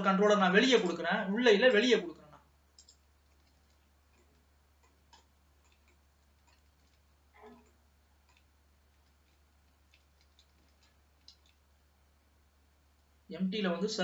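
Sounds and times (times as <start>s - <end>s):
steady low hum: 0.0s - 14.0s
computer mouse clicks: 2.7s - 11.6s.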